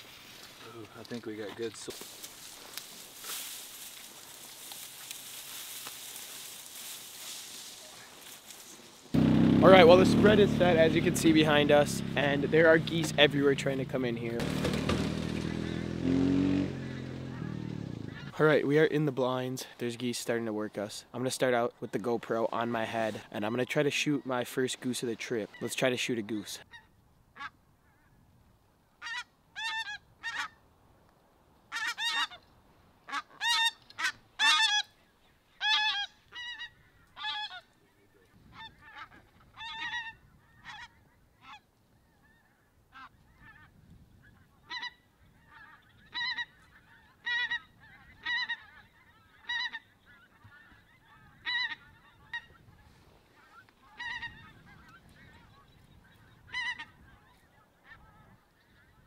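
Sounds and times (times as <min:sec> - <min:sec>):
goose honking: 0:16.7 - 0:18.4, 0:29.0 - 0:30.6, 0:31.7 - 0:32.4, 0:33.0 - 0:35.0, 0:35.6 - 0:37.8, 0:38.5 - 0:41.7, 0:44.5 - 0:55.7, 0:56.5 - 0:59.0.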